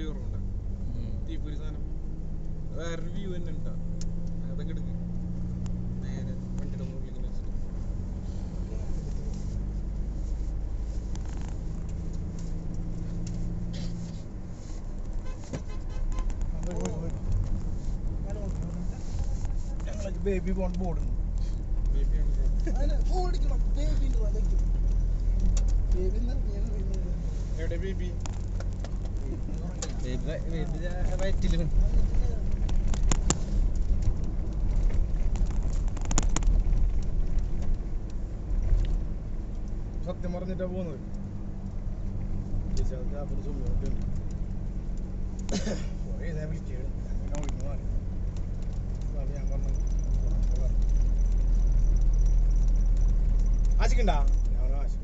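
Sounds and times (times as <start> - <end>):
vehicle engine and road noise: 0.0 - 55.0
sharp clicks and taps: 28.1 - 30.0
light clicks or rattles: 47.2 - 54.9.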